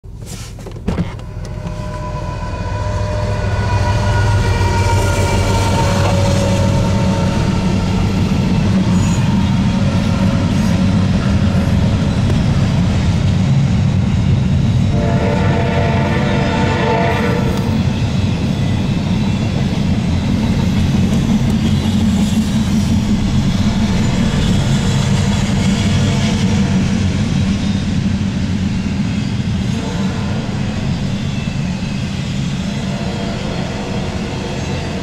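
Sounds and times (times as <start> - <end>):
freight train rumbling: 0.0 - 35.0
high ringing tone: 1.2 - 7.6
locomotive horn: 1.2 - 8.0, 14.9 - 17.8, 29.6 - 30.8.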